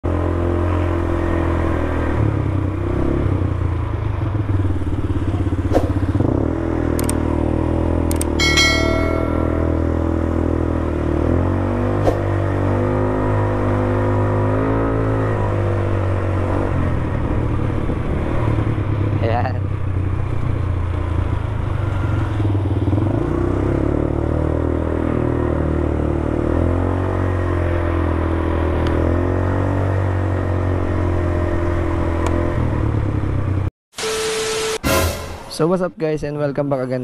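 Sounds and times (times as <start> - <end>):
atv engine running: 0.1 - 33.7
sharp clicks: 6.9 - 7.2, 8.0 - 8.4
bright bell-like chime: 8.4 - 10.4.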